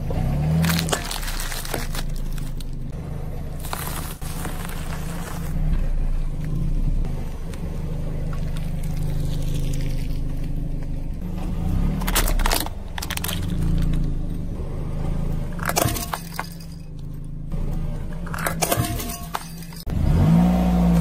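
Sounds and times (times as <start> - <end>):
car engine idling: 0.0 - 21.0
tyre crushing something brittle: 0.5 - 2.8, 3.6 - 5.6, 12.0 - 14.0.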